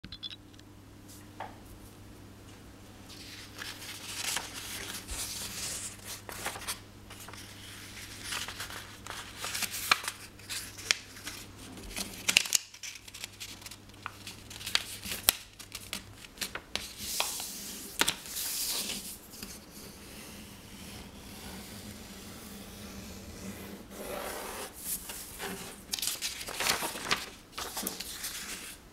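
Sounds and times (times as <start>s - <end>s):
paper rustling and crinkling: 3.1s - 19.6s, 24.7s - 28.8s.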